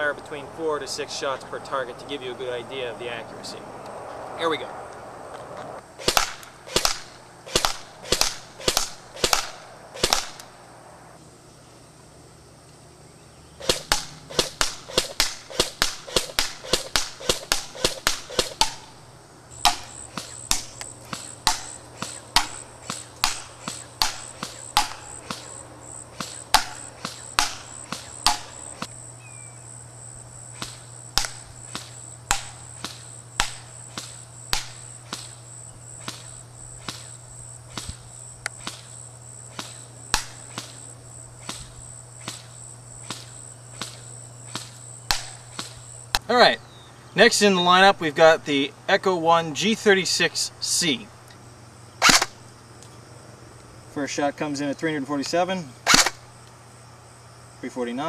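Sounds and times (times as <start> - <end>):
airsoft gun shots: 6.0 - 10.5, 13.6 - 19.0, 19.6 - 25.6, 26.2 - 28.9, 30.6 - 35.4, 36.0 - 45.9, 52.0 - 52.4, 55.8 - 56.3.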